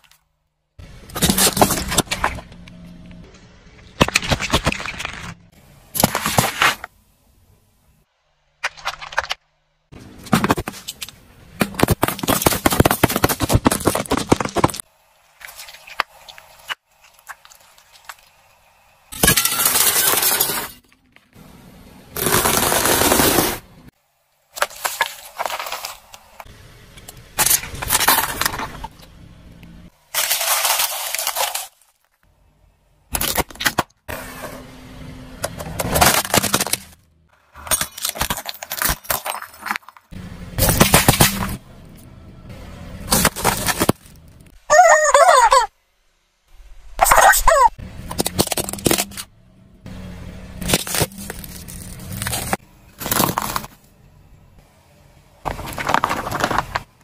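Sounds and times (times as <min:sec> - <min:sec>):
tyre crushing objects: 0:01.1 - 0:02.5, 0:10.0 - 0:16.2, 0:22.2 - 0:23.7, 0:35.5 - 0:37.0, 0:37.6 - 0:41.6, 0:43.0 - 0:44.4, 0:48.0 - 0:49.3, 0:50.6 - 0:53.8, 0:55.5 - 0:57.0.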